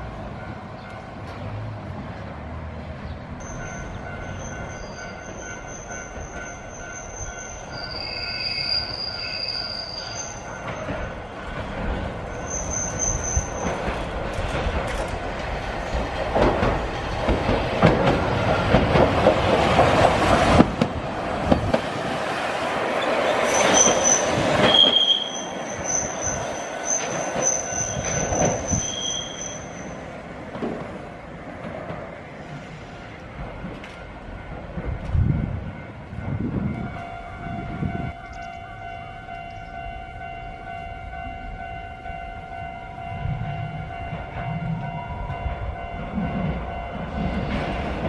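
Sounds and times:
tram wheels clattering over rail joints: 0.0 - 48.0
high-pitched wheel squeal: 3.4 - 10.9, 12.3 - 13.8, 23.0 - 30.0.

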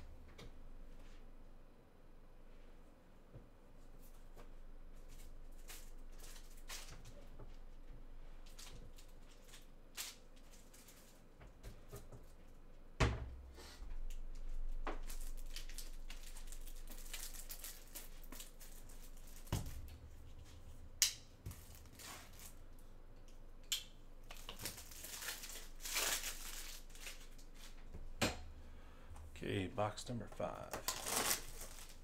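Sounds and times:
plastic rustling and crinkling: 4.9 - 7.7, 8.4 - 12.4, 14.0 - 20.8, 21.4 - 22.9, 24.2 - 27.9, 30.7 - 32.0.

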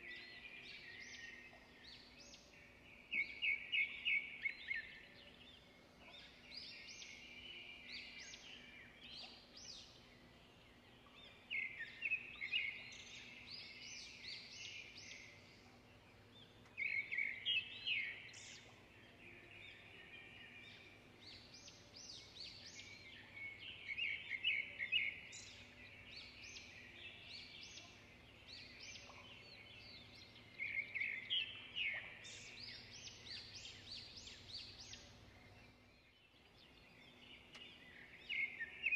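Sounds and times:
birds chirping: 0.0 - 38.9.

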